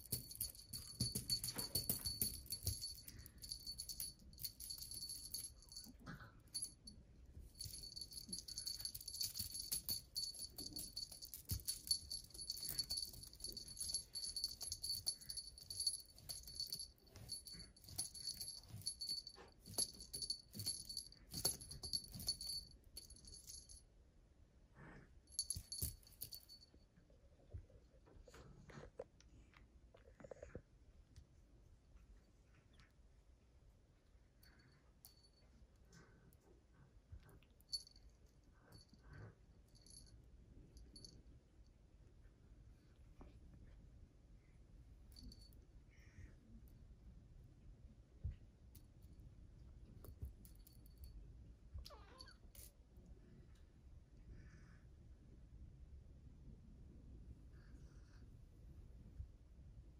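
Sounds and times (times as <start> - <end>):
small bell jingling: 0.0 - 23.8, 25.3 - 26.8, 37.3 - 40.2.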